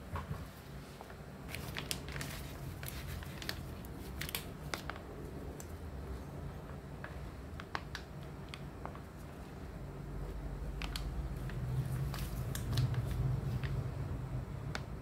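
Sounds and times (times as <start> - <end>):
steady low hum: 0.0 - 15.0
plastic packaging crinkling: 1.4 - 5.8, 10.7 - 13.9.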